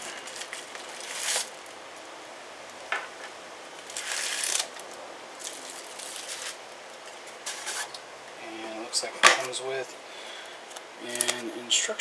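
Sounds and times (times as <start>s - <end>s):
bubble wrap rustling: 0.0s - 2.0s, 3.7s - 8.0s, 10.6s - 11.5s.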